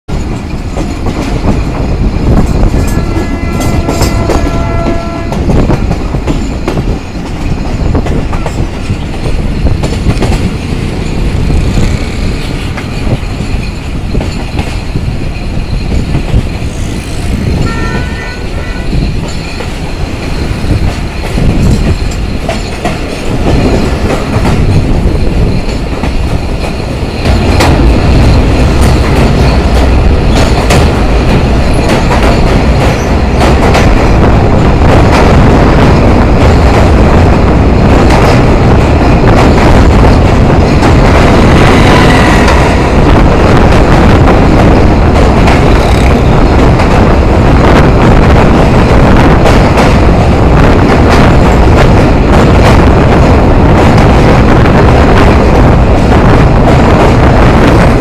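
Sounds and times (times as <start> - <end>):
train rumbling: 0.1 - 58.0
train horn blowing: 2.9 - 5.6, 17.6 - 19.1.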